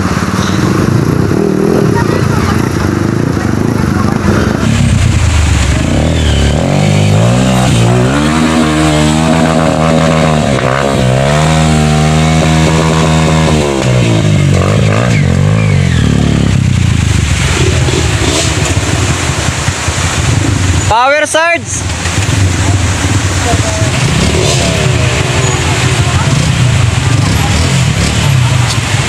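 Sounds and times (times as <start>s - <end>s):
dirt bike engine revving: 0.0s - 20.9s, 21.8s - 29.0s.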